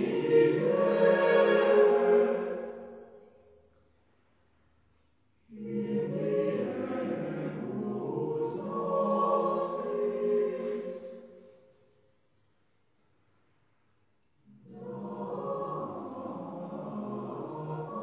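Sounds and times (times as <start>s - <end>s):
choir singing a cappella: 0.0s - 3.3s, 5.4s - 11.7s, 14.4s - 18.0s.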